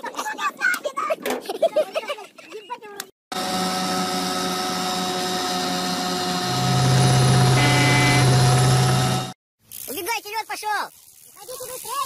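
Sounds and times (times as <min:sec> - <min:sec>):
outboard motor running: 0:03.3 - 0:09.4.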